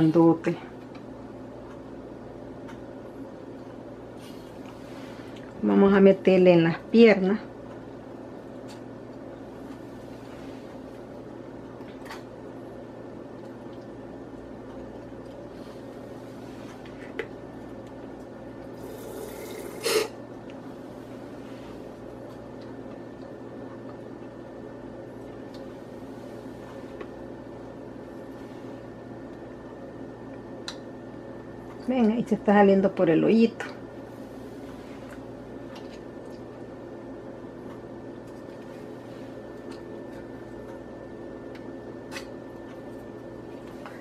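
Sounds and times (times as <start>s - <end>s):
steady low hum: 0.0s - 44.0s
wet squishes and clicks: 30.3s - 30.9s.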